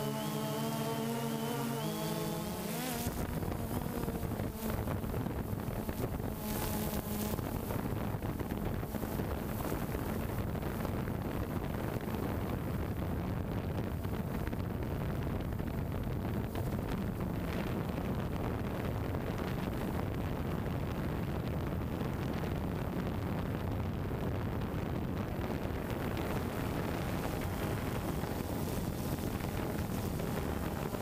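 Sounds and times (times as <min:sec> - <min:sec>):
drone propellers whirring: 0:00.0 - 0:04.5
wind noise on microphone: 0:00.0 - 0:31.0.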